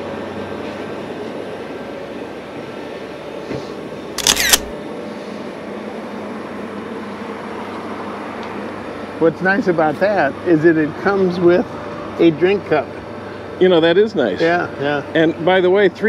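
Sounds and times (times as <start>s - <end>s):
street traffic hum: 0.0s - 16.0s
camera shutter double click: 4.2s - 4.7s.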